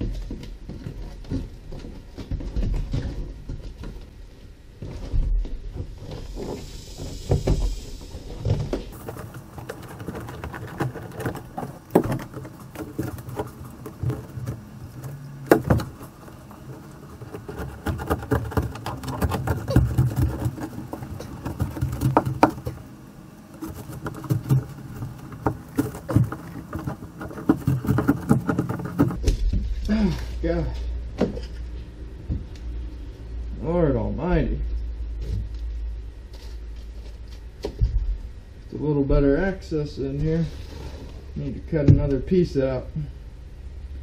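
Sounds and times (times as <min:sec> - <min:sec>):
carpet and foam rustling: 0:00.0 - 0:32.8
sharp knocks: 0:15.4 - 0:16.1.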